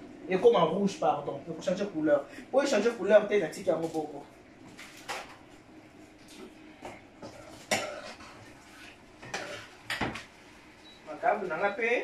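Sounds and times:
dishes and utensils clinking: 9.2 - 10.3.

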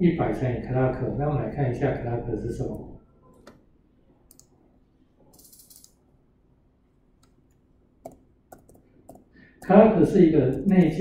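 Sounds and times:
computer mouse clicking: 4.3 - 4.5, 5.3 - 6.0, 7.2 - 9.3.

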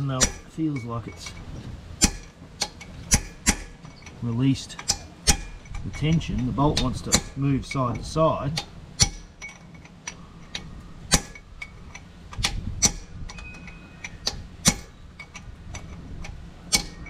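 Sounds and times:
metal strikes: 0.0 - 4.1, 4.8 - 9.6, 11.1 - 11.5, 12.4 - 15.9
short metallic ring: 12.8 - 15.9.

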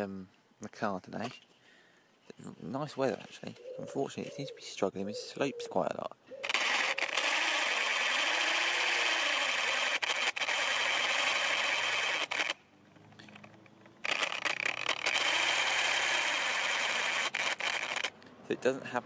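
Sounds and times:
electric motor whirring: 6.4 - 18.1.

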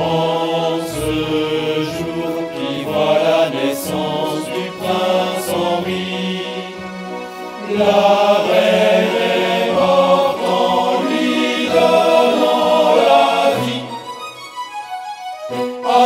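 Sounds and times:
chorus singing: 0.0 - 14.4, 15.5 - 16.0
instrumental accompaniment: 0.0 - 16.0.

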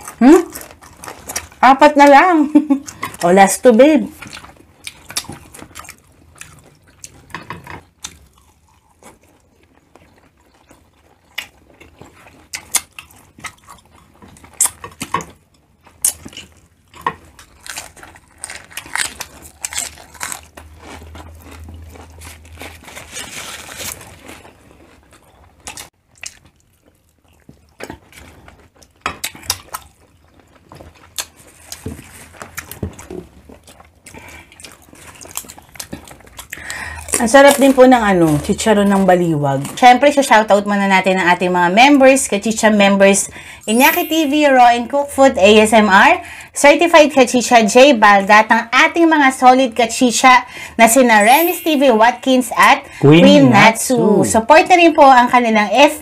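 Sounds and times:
wet chewing and lip smacking: 4.2 - 23.0, 24.0 - 37.2.

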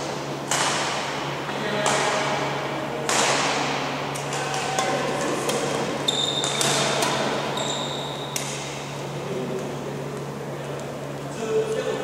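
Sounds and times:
rackets hitting shuttlecock: 0.0 - 9.0
shoes squealing on court floor: 6.0 - 8.9.

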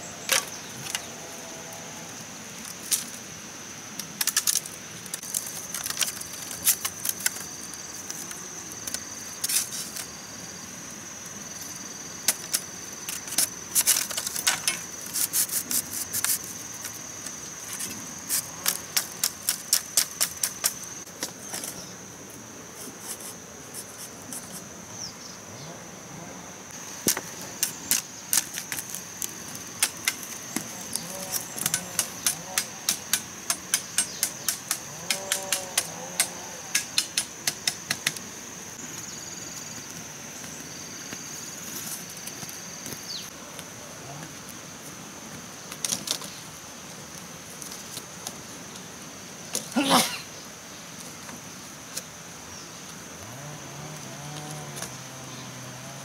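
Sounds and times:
high insect drone: 0.0 - 56.0
bamboo strips clacking: 4.0 - 10.1, 17.7 - 21.8, 27.0 - 38.2.

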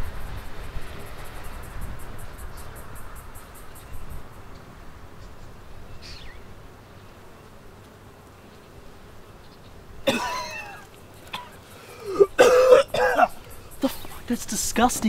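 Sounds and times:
faint background hiss: 0.0 - 15.0
boy coughing and spluttering: 10.0 - 14.0.

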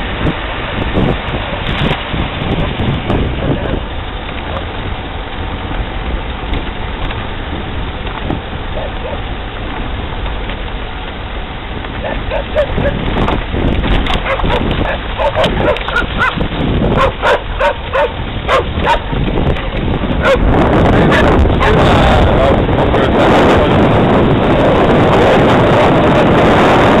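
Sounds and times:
car engine running: 0.0 - 26.4
dog barking and yipping: 12.0 - 13.0, 14.2 - 19.1, 20.2 - 20.5.

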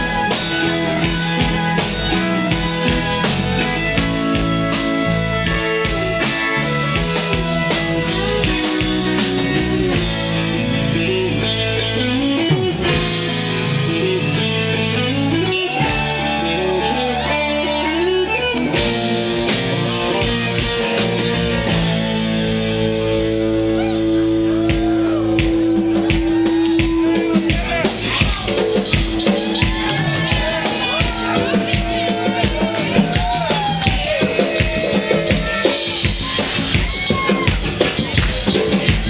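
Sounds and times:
country rock band playing: 0.0 - 39.0
sliding bending guitar lead: 0.0 - 39.0.

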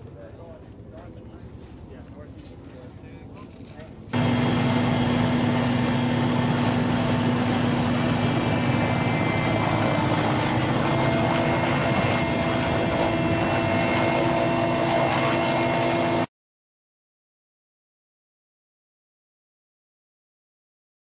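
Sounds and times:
helicopter engine and rotor noise: 0.0 - 16.3.

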